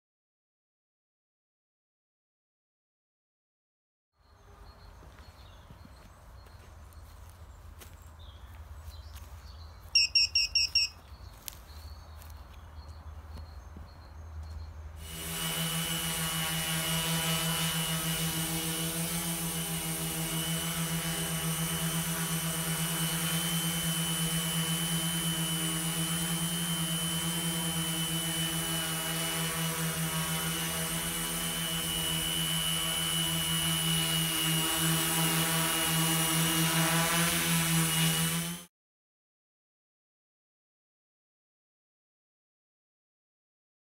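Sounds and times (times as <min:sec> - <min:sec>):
high electronic beeps: 0:10.0 - 0:11.0
drone motors whining: 0:15.0 - 0:38.6.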